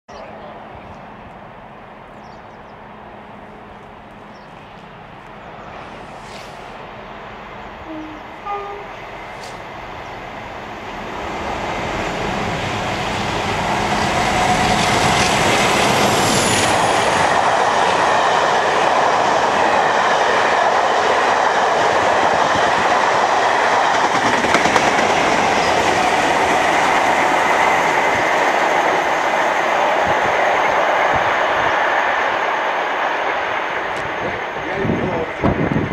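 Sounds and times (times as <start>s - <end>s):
diesel locomotive engine working hard: 0.2s - 35.9s
train wheels on rails: 1.0s - 35.9s.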